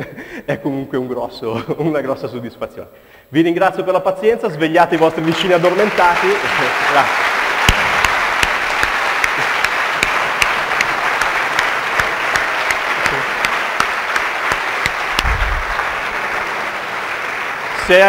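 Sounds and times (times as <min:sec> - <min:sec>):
audience applauding: 0:04.6 - 0:18.0.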